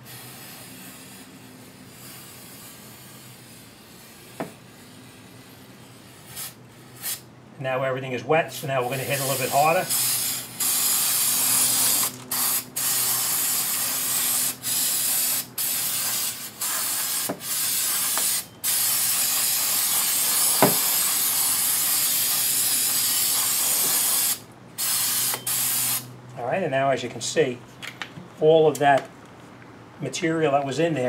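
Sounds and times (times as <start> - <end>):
aerosol spray hissing: 0.0 - 5.2, 6.1 - 7.2, 8.8 - 26.1.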